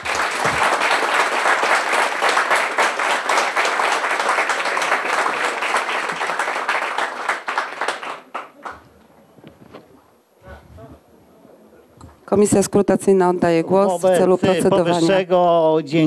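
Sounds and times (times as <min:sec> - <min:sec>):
crowd applause: 0:00.0 - 0:09.0.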